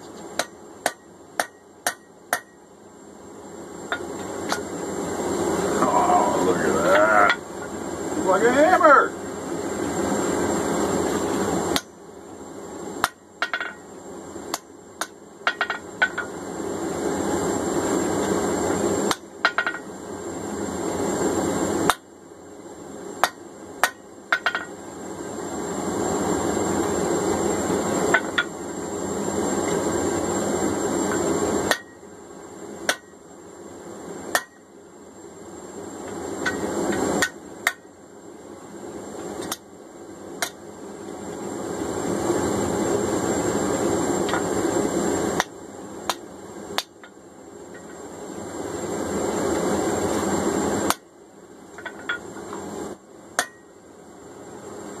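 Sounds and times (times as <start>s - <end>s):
hammer striking steel on anvil: 0.4s - 2.6s, 11.8s - 12.0s, 13.0s - 13.8s, 23.2s - 24.7s, 31.7s - 32.0s, 32.9s - 33.1s, 34.3s - 34.7s, 37.2s - 37.9s, 53.4s - 53.7s
forge rushing noise: 3.9s - 11.8s.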